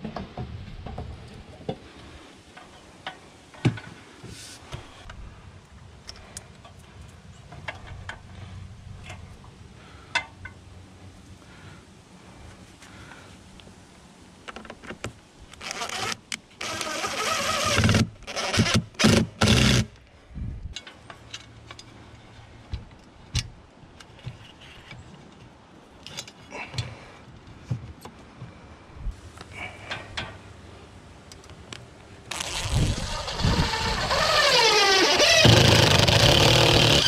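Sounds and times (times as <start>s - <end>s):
cordless drill motor whine: 32.7s - 37.0s.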